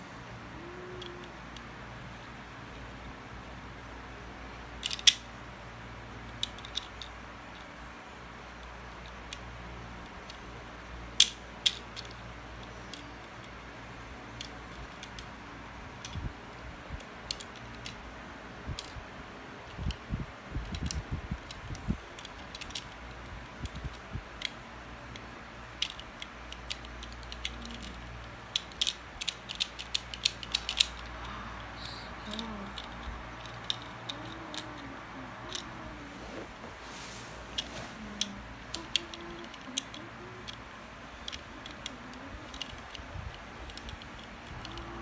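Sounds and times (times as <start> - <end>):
plastic pieces clicking: 4.8 - 5.3, 6.3 - 7.2, 11.2 - 13.6, 16.0 - 18.0, 20.6 - 35.9, 37.6 - 45.0.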